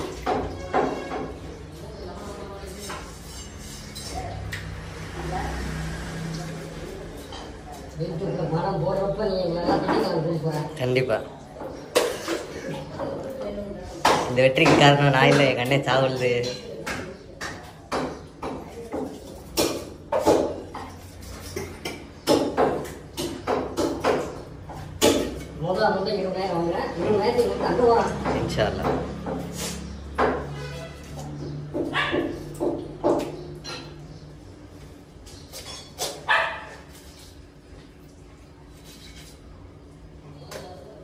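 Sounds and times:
sharp knocks of butchering: 0:21.7 - 0:25.5
dog barking: 0:31.9 - 0:32.4, 0:36.3 - 0:36.8.

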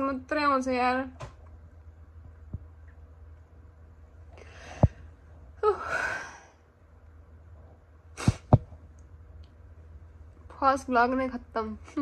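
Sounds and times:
woman breathing in: 0:04.4 - 0:05.1
woman sighing: 0:05.6 - 0:06.6.

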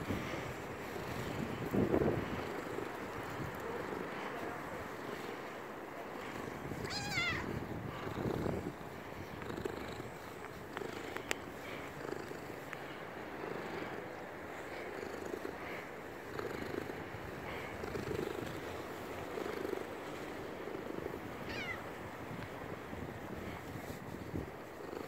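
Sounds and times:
cat purring: 0:00.2 - 0:21.8
cat wavering call: 0:06.9 - 0:07.6.

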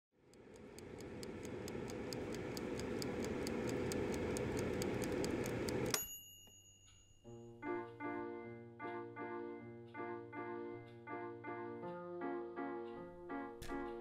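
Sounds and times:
hum: 0:00.2 - 0:06.0
mechanical ticking: 0:00.2 - 0:06.1
bell-like ding: 0:05.9 - 0:07.7.

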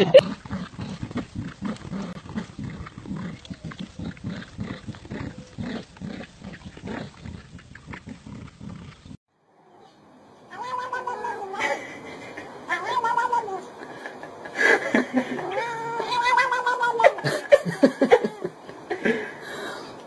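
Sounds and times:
dogs growling: 0:00.0 - 0:09.9.

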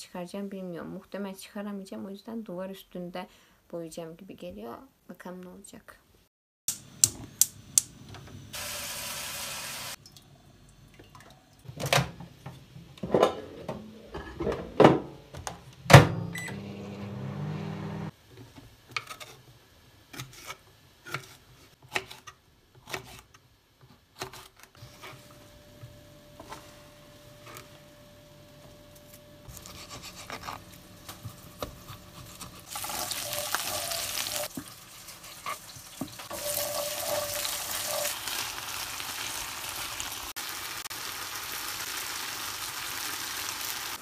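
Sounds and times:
appliance door and pans clattering: 0:11.7 - 0:16.4.

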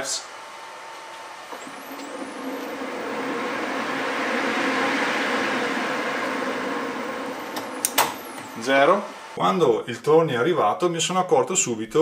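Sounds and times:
lathe gears running: 0:00.0 - 0:09.4
lathe motor whine: 0:00.0 - 0:09.4.

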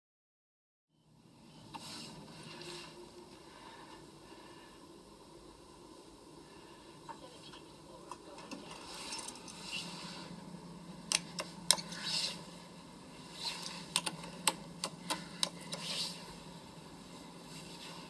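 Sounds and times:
low steady hum: 0:00.9 - 0:18.0.

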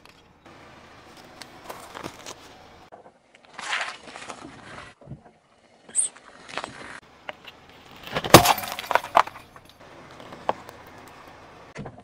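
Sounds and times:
brittle object cracking under tyre: 0:01.0 - 0:02.5, 0:06.2 - 0:11.2.

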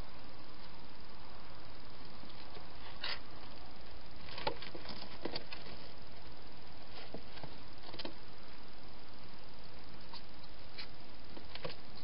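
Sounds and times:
steady hiss: 0:05.4 - 0:12.0.

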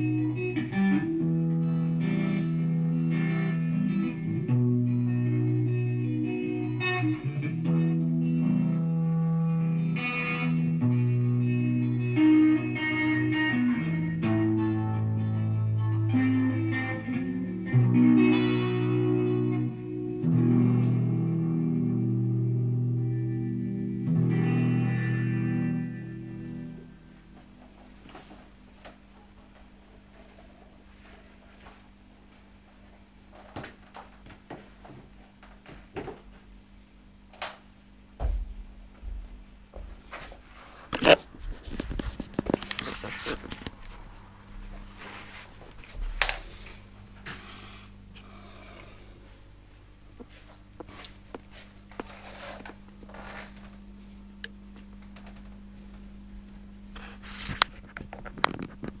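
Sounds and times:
steady low hum: 0:00.0 - 0:59.0
guitar knocks and clunks: 0:38.2 - 0:40.4, 0:45.7 - 0:46.7
deep footstep thumps: 0:38.2 - 0:40.5
camera handling rustling: 0:40.9 - 0:43.8.

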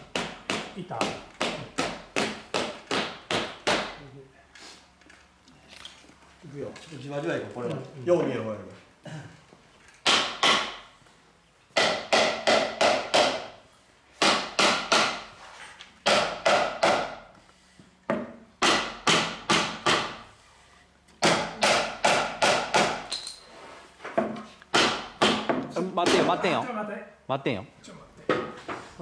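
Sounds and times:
hammer knocking wood: 0:00.1 - 0:04.0, 0:10.0 - 0:10.8, 0:11.8 - 0:13.6, 0:14.2 - 0:15.2, 0:16.0 - 0:17.2, 0:18.1 - 0:20.2, 0:21.2 - 0:23.1, 0:24.2 - 0:26.4.

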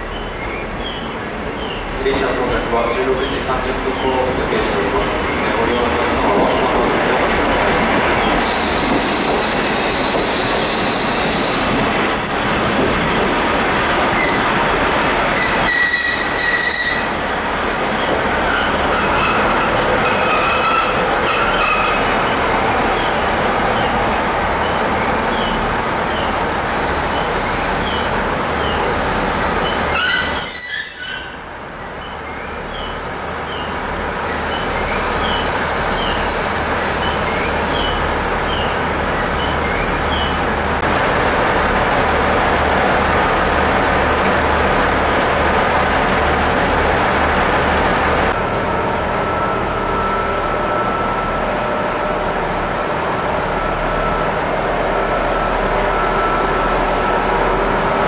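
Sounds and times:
train rumbling on rails: 0:00.0 - 0:58.0
high wheel squeals: 0:08.4 - 0:14.5, 0:15.2 - 0:17.2, 0:26.8 - 0:31.7.

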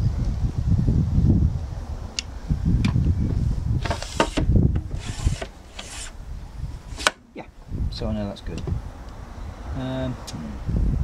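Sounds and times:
glass pane scraping in frame: 0:03.8 - 0:06.2.

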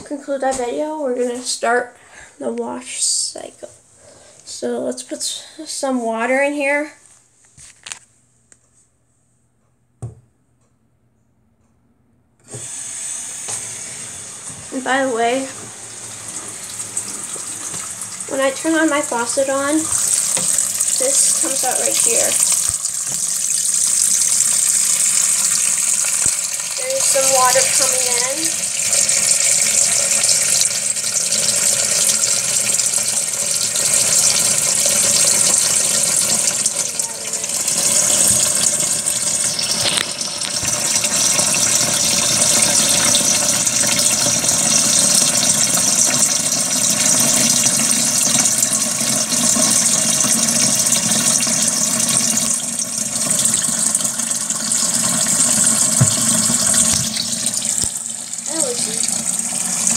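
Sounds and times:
tap water splashing into plastic tub: 0:15.5 - 0:59.9.

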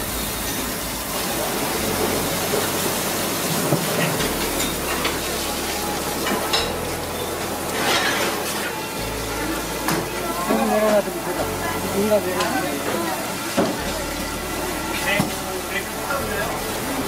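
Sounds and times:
tap water splashing into sink: 0:12.3 - 0:14.0, 0:15.0 - 0:15.4.

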